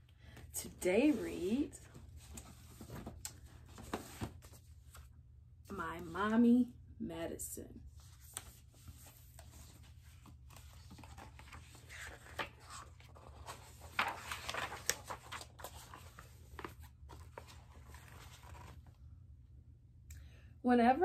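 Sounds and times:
book pages rustling and turning: 0:00.3 - 0:05.1, 0:07.9 - 0:19.0.

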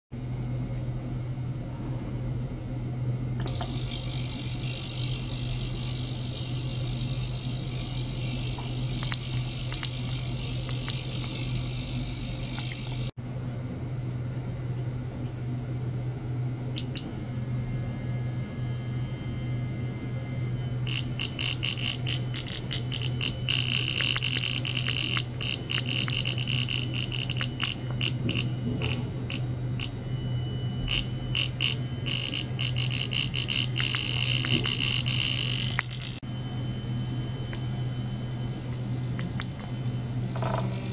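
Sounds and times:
ultrasonic cleaner humming: 0:03.4 - 0:13.2, 0:16.7 - 0:40.9
crackling rattle of clicks: 0:20.9 - 0:29.9.

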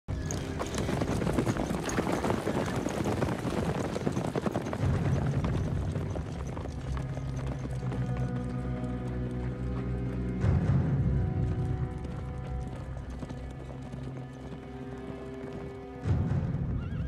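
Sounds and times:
horse hooves clip-clopping: 0:00.1 - 0:17.0
low musical drone: 0:05.6 - 0:17.0.

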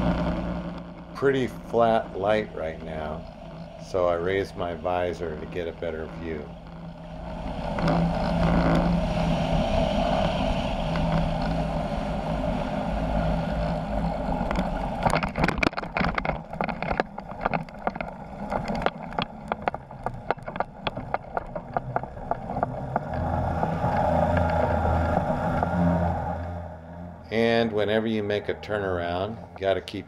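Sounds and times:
wind noise: 0:00.0 - 0:29.8
two-stroke engine running: 0:00.0 - 0:30.0
skis knocking and rattling on snow: 0:01.1 - 0:06.5, 0:14.4 - 0:23.8.

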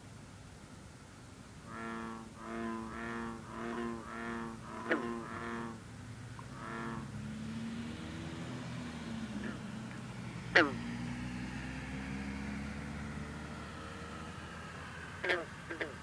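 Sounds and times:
frog calling deep notes: 0:01.6 - 0:05.8, 0:06.4 - 0:07.2, 0:09.3 - 0:09.7, 0:10.5 - 0:10.9, 0:15.1 - 0:16.0
distant frog calls: 0:01.6 - 0:16.0.

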